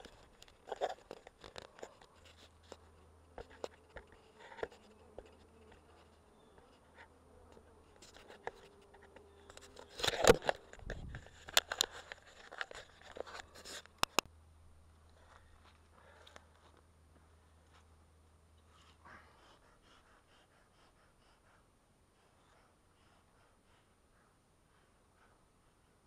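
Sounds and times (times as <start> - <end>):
clicks and scrapes of handling: 0.0 - 14.3.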